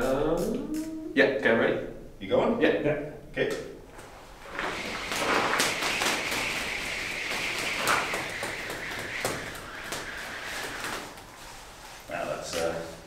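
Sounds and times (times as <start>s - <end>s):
hissing whoosh of spun steel wool: 4.0s - 13.0s
sparks snapping and crackling: 4.0s - 13.0s.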